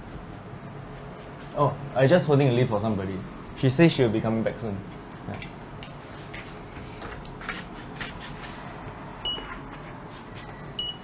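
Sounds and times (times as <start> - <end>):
soft footsteps: 0.0 - 1.9, 4.8 - 10.7
steady low hum: 0.0 - 11.0
lift beeping: 9.2 - 9.6, 10.6 - 11.0.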